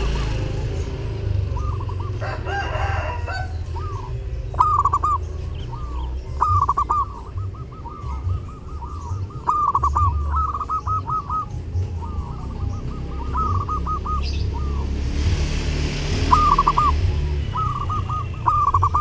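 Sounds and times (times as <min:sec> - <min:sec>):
dove cooing: 0:00.0 - 0:19.0
rooster crowing: 0:02.0 - 0:04.1.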